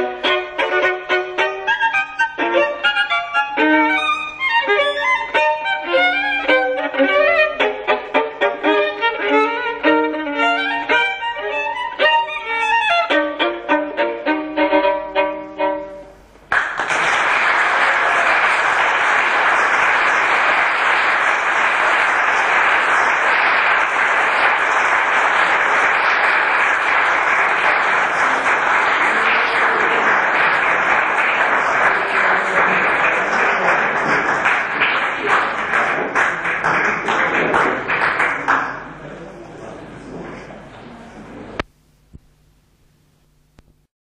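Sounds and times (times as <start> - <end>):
audience applauding: 16.5 - 39.0.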